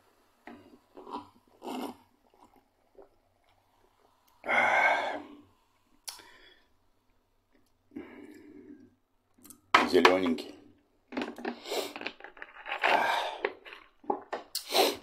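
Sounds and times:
man gulping fizzy drink: 0.5 - 5.4
breathy exhale: 4.4 - 6.8.

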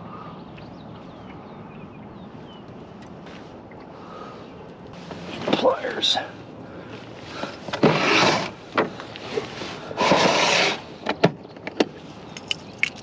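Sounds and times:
sharp clicks and knocks: 11.0 - 13.0.

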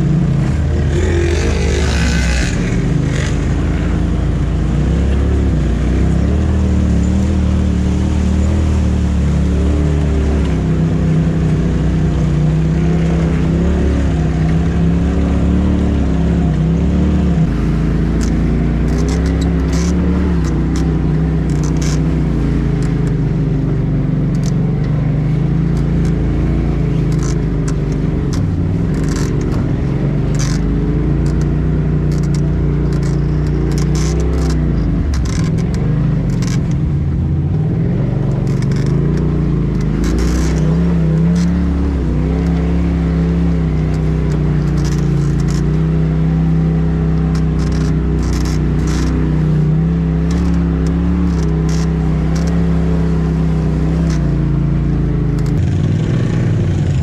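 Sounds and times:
off-road vehicle engine running: 0.0 - 57.0
short scrapes and rustles: 38.1 - 46.0, 47.2 - 54.6.

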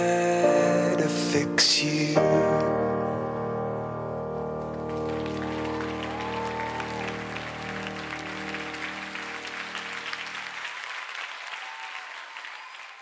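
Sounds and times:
audience applauding: 4.7 - 13.0.

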